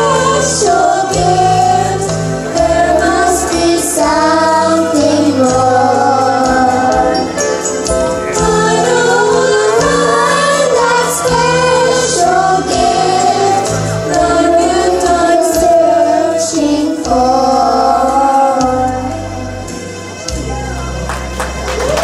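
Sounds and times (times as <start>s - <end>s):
children singing into microphones: 0.0s - 19.4s
musical accompaniment with bass: 0.0s - 22.0s.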